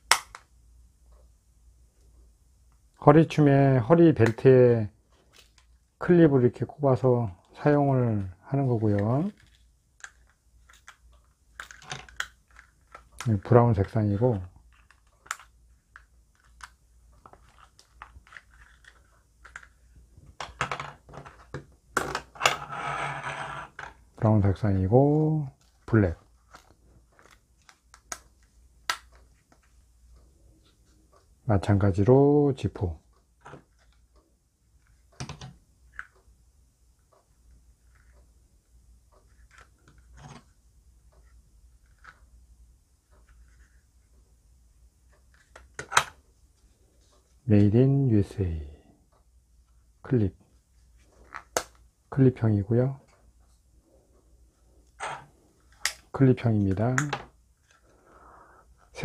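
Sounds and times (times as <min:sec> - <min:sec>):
scrape: 0:22.6 - 0:23.7.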